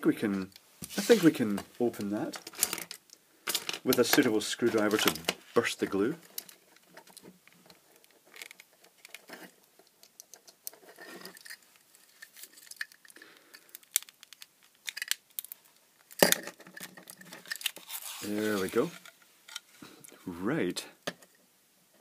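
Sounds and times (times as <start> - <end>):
plastic clicks and creaks: 6.2 - 11.6, 12.2 - 20.2.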